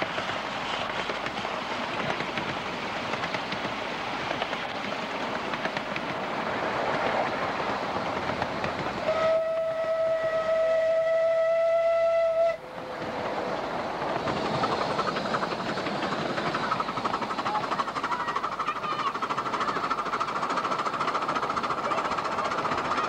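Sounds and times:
train wheels clattering on rails: 0.0 - 10.0, 11.1 - 23.0
steam whistle: 9.0 - 12.9.

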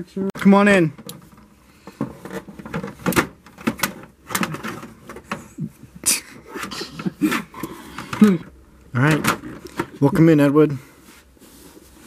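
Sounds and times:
stuffed toys knocking and rustling: 0.9 - 10.2.

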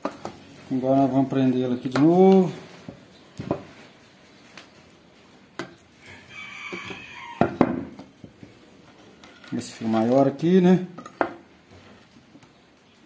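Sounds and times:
rooster crowing: 6.0 - 7.9
clicks and knocks of parts handled: 7.8 - 10.4.

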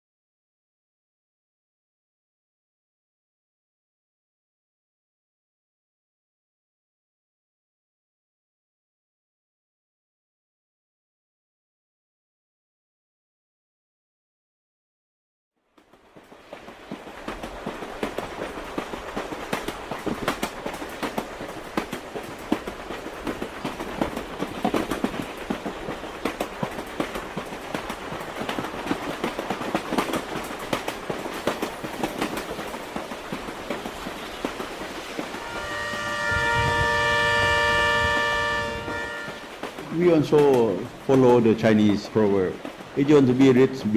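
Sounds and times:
train rumbling along track: 15.8 - 43.9
wheels clicking on rails: 15.8 - 43.9.

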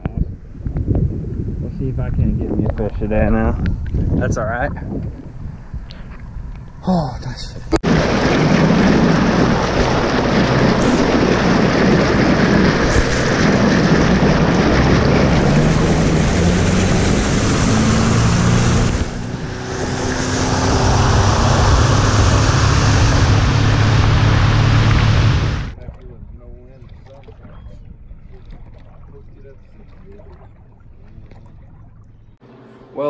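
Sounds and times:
wind on microphone: 0.0 - 6.8, 7.5 - 31.2
water rushing along boat hull: 7.8 - 32.4
outboard motor droning: 7.8 - 33.0.

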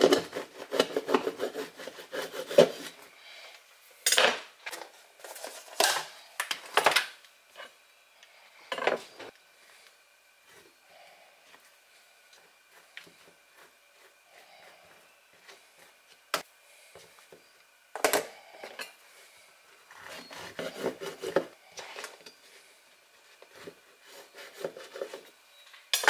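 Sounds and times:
knife sawing through bread: 0.0 - 3.0, 19.9 - 21.5, 24.0 - 25.1.

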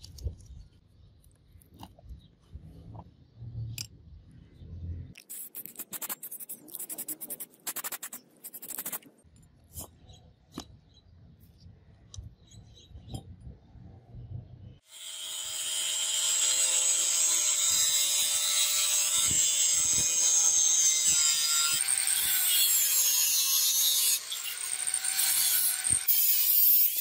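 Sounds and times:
spray can hissing: 5.2 - 9.1.

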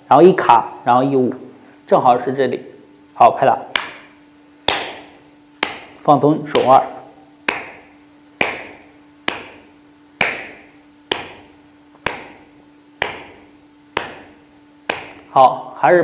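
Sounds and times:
palm slapping skin: 3.8 - 6.0, 7.4 - 15.3.

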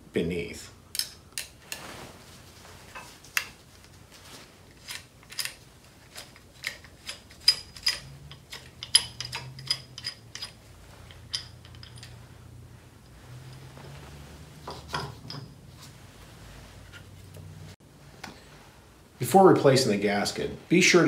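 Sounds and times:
allen wrench clicking on screws: 4.8 - 12.2.

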